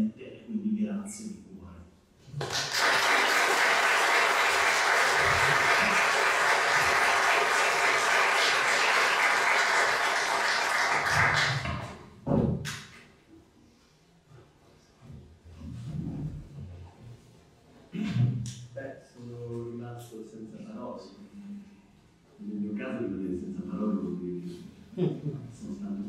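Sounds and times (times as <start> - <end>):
audience applauding: 2.3 - 12.0
thump: 12.2 - 12.8.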